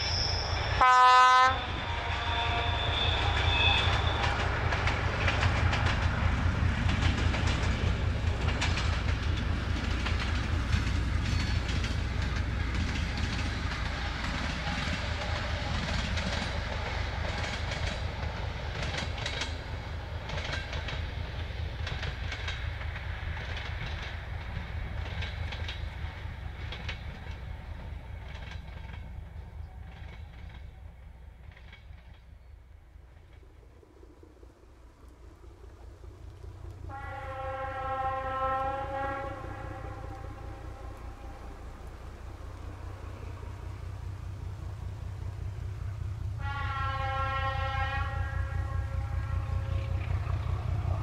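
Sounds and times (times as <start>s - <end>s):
diesel locomotive engine throb: 0.0s - 32.2s, 36.2s - 51.0s
train wheels clicking over rail joints: 1.7s - 33.6s.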